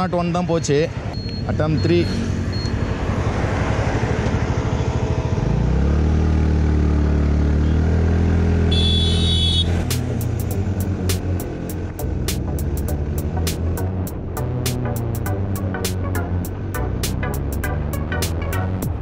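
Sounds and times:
scooter engine revving: 1.1 - 14.3.

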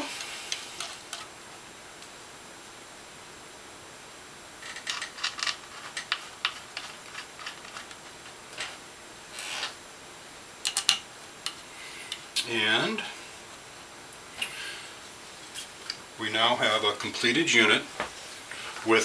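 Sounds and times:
short scrape: 9.3 - 9.8.

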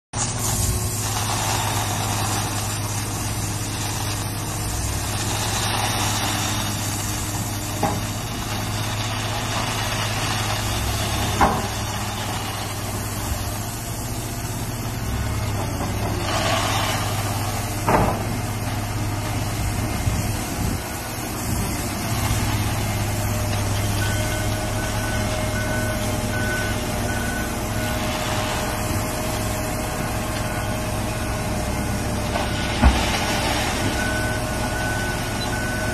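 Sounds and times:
heavy diesel engine running: 0.2 - 35.9
reversing alarm beeping: 23.8 - 29.0, 30.0 - 31.4, 33.8 - 35.9.

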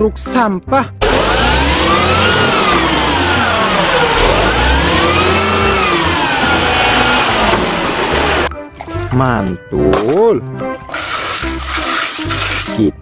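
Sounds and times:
garbage truck engine revving: 1.0 - 8.5.

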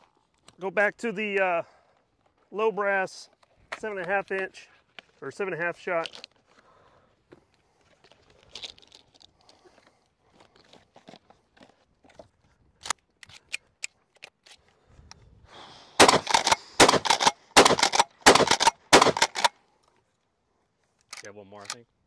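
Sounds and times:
shotgun shells clicking: 16.0 - 19.5
shotgun shots: 16.0 - 19.5.

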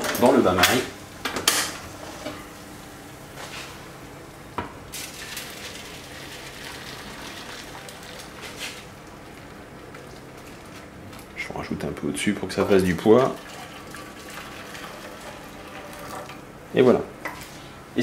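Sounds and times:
water pouring into a glass dish: 13.2 - 16.3.

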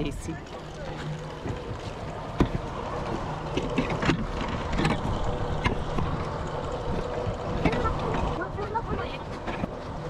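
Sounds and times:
water against boat hull: 0.3 - 10.0.

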